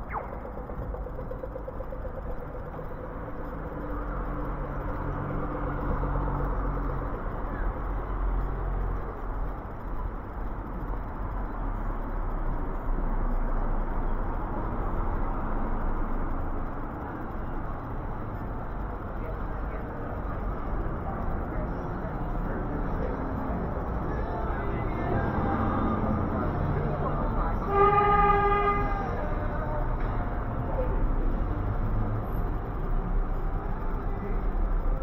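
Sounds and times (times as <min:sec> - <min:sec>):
steady engine hum: 0:00.0 - 0:35.0
vehicles passing: 0:00.0 - 0:35.0.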